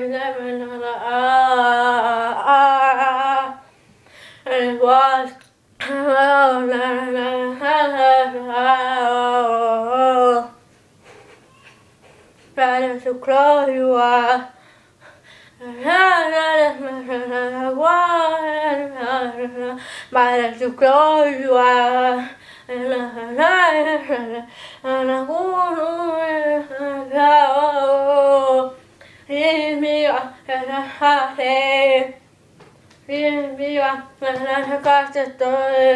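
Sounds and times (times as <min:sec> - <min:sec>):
boy singing unaccompanied: 0:33.1 - 0:35.9.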